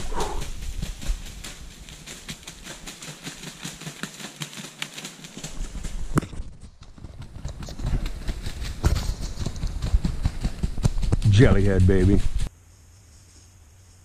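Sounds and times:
footsteps crunching dry leaves: 0.0s - 6.1s.

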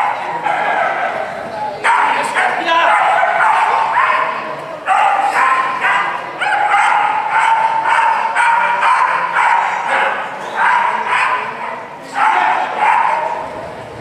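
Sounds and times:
dog yapping: 1.8s - 11.6s, 12.2s - 13.4s.

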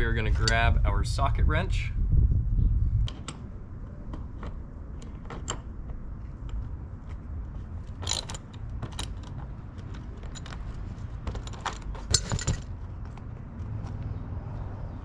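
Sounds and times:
metal tools clicking and clinking: 7.9s - 12.7s.

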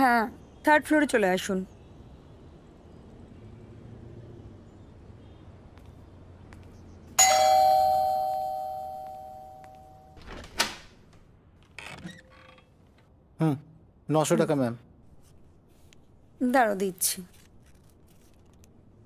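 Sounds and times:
doorbell chime: 7.2s - 10.2s.

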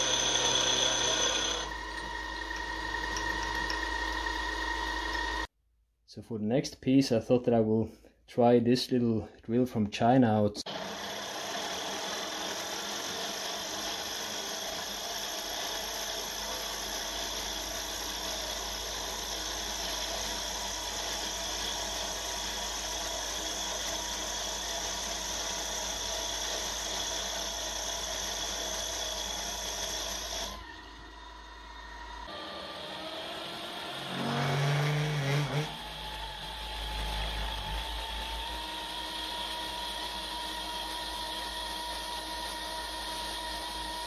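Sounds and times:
mill drilling into cast iron: 0.0s - 5.4s, 33.7s - 37.6s
spindle running: 0.0s - 5.5s.

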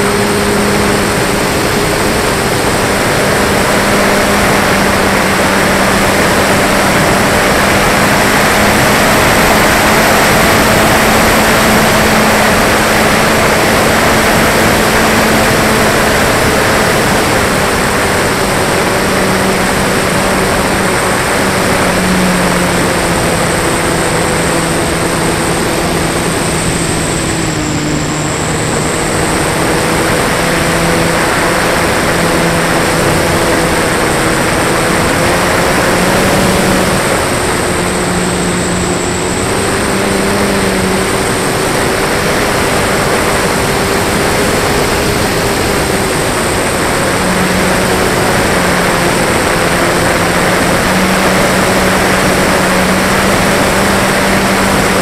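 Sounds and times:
electric motor and propeller humming: 0.0s - 55.0s
wind rushing over microphone: 0.0s - 55.0s.

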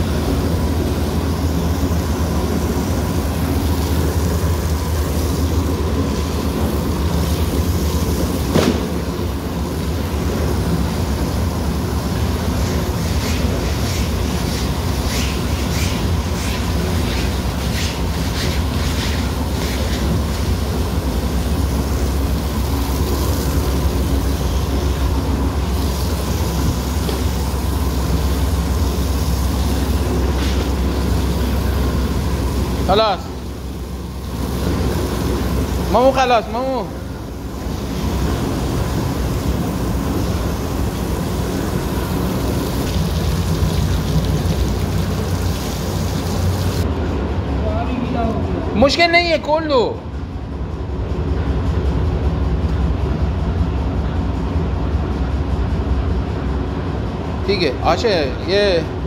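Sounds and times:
low machine hum: 0.0s - 59.0s
hose water splashing and rushing: 12.5s - 36.0s, 37.6s - 46.8s
water gushing over a rug: 40.6s - 46.8s.

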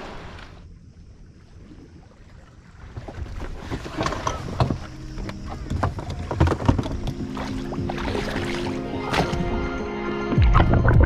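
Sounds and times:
low wind rumble: 0.0s - 9.7s
gear knocking and rattling: 3.0s - 7.3s.

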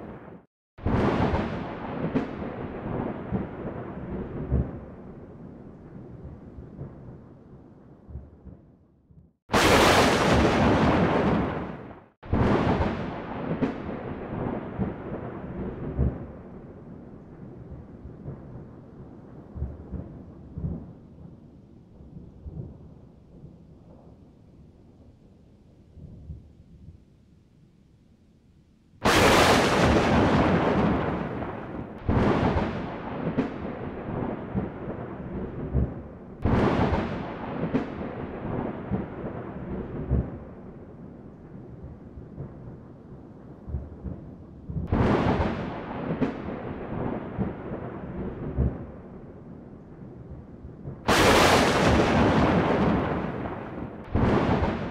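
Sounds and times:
sharp thunder crack: 0.0s - 4.9s, 9.5s - 16.4s, 29.0s - 40.4s, 44.7s - 49.0s, 51.1s - 54.9s
close thunder claps: 0.0s - 8.7s, 9.5s - 21.3s, 29.0s - 49.2s, 50.0s - 54.9s.

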